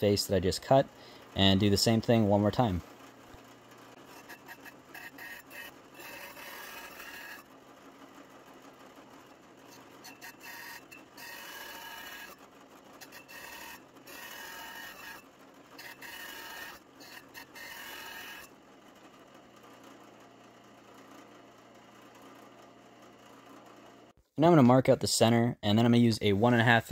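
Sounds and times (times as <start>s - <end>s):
drill press hole saw cutting wood: 3.9s - 7.5s, 9.7s - 18.6s.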